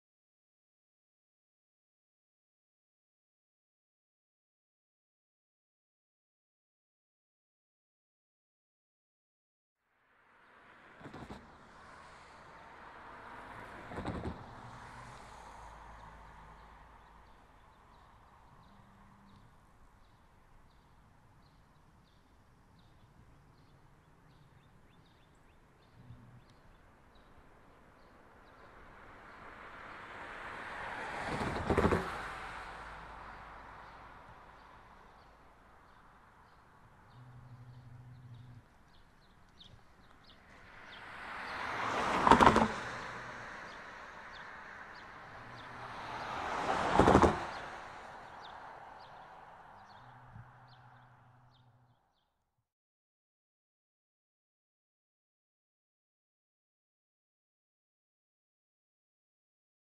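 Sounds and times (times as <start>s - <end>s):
cars passing: 10.0s - 52.0s.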